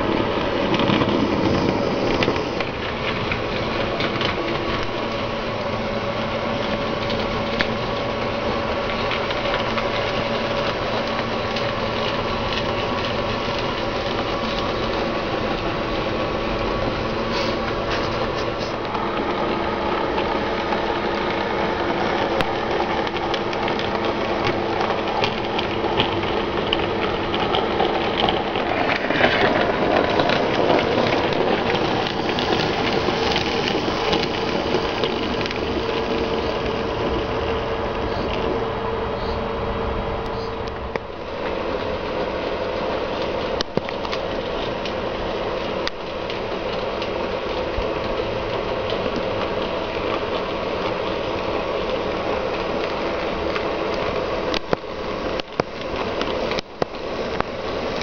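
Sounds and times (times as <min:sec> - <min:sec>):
model train motor whirring: 0:00.0 - 0:38.5
wheels clattering on rails: 0:00.0 - 0:58.0.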